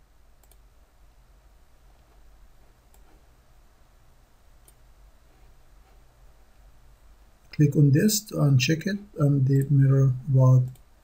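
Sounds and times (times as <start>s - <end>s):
low steady hum: 0.0s - 11.0s
faint mouse clicks: 0.4s - 0.7s, 2.8s - 3.2s, 4.6s - 6.0s, 10.6s - 10.9s.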